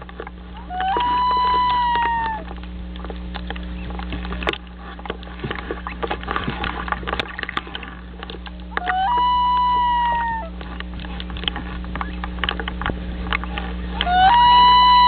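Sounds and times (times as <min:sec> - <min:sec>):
light crackles and ticks: 0:00.0 - 0:01.1, 0:01.7 - 0:09.0, 0:10.5 - 0:14.1
loon wailing call: 0:00.6 - 0:02.6, 0:08.7 - 0:10.6, 0:14.0 - 0:15.0.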